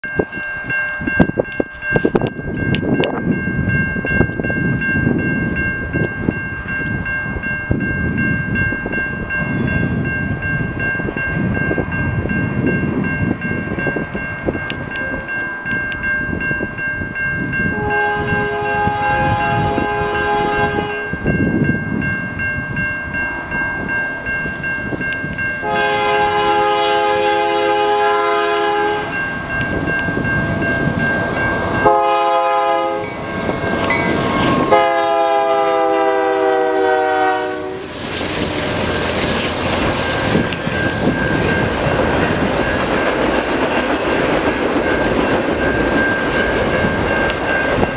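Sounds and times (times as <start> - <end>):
steady high-pitched tone: 0.0 - 35.2, 37.4 - 47.9
locomotive air horn blasts: 17.7 - 21.1, 25.6 - 29.2, 31.8 - 33.2, 34.4 - 37.9.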